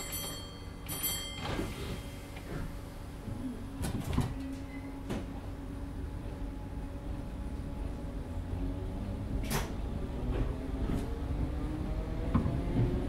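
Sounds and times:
train steady hum: 0.0 - 13.0
sliding doors closing: 1.4 - 3.0, 9.0 - 13.0.

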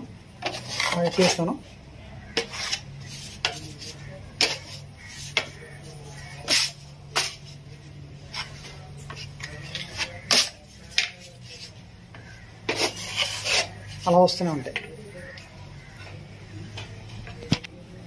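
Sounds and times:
putty blade scraping wall: 0.4 - 1.5, 2.3 - 5.6, 8.3 - 14.2.

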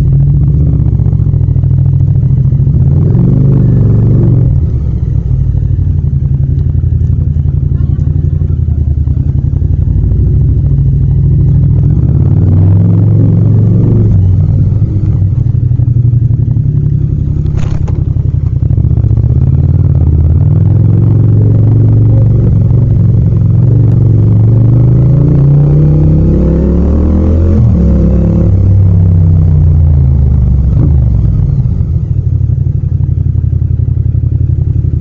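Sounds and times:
motorcycle engine running: 0.0 - 35.0.

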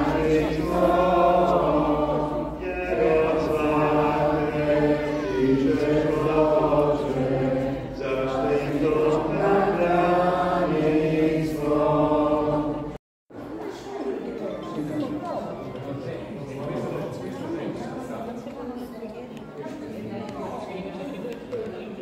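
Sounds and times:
congregation singing a hymn: 0.0 - 13.0.

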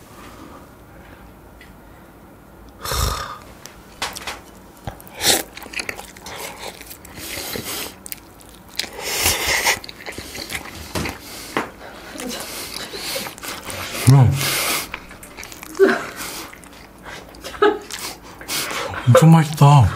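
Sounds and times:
person slurping noodles: 2.8 - 3.5
wet chewing and mouth clicks: 4.0 - 18.8.

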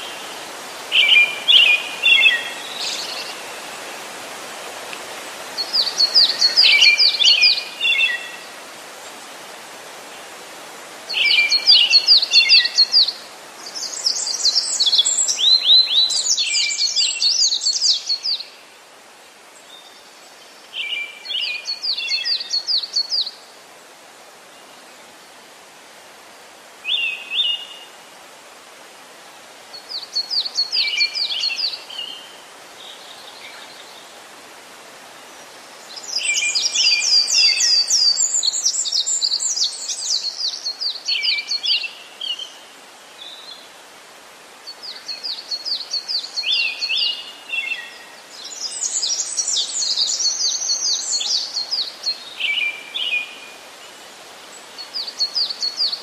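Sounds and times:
songbird singing: 0.0 - 23.6, 26.3 - 28.2, 29.6 - 56.0
steady hiss: 0.0 - 56.0.

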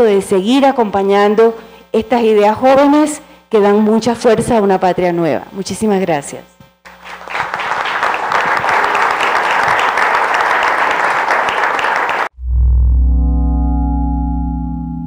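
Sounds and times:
audience applauding: 6.9 - 12.3
soft sustained music: 12.6 - 15.0.

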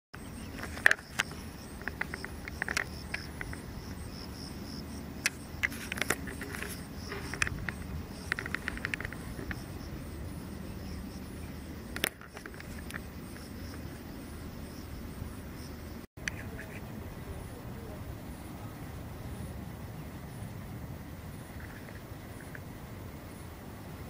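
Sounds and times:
insects chirping in a fast trill: 0.2 - 24.0
sharp clicks: 5.2 - 9.6, 11.9 - 13.8.

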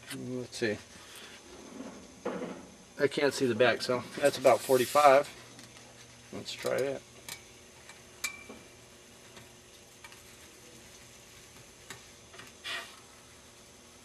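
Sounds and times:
hot wire cutting foam hissing: 3.9 - 5.3, 11.9 - 13.1.

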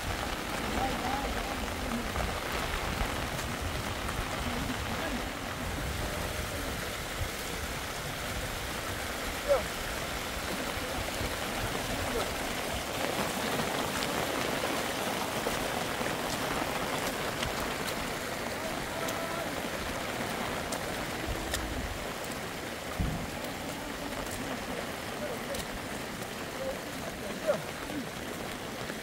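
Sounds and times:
rain falling: 0.0 - 29.0
stream rushing over stones: 0.0 - 29.0
low thump: 23.0 - 23.4.

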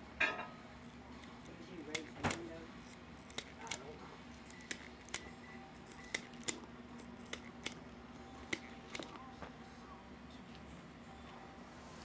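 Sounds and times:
steady low hum: 0.0 - 12.0
sharp crisp clicks: 4.4 - 7.8.

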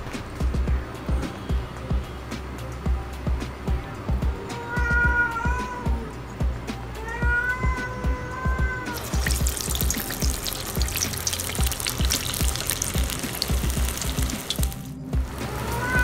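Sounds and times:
batter deep-frying in oil: 9.0 - 16.0.

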